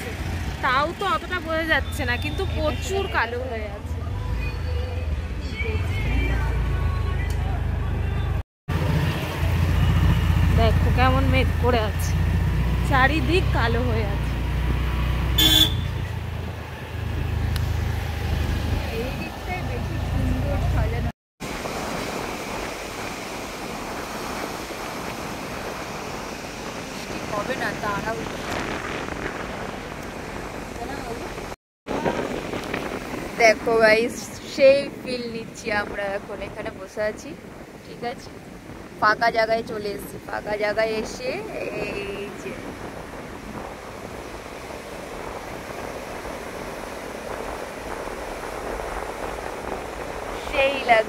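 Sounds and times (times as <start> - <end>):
wind rumbling on microphone: 8.7 - 51.0
waves breaking: 21.4 - 51.0.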